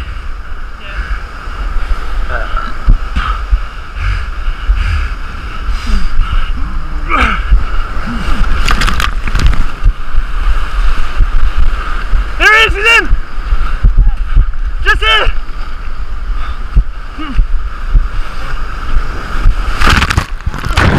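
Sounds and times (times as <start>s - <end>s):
waves breaking over rocks: 5.1s - 20.9s
close water splashing: 7.4s - 20.9s.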